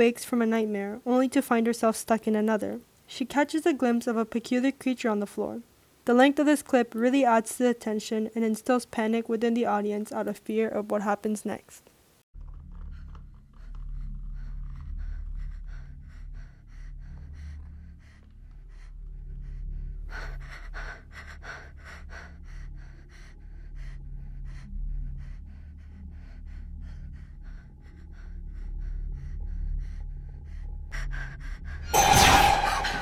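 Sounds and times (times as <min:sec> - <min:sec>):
low steady drone: 0:14.8 - 0:33.0.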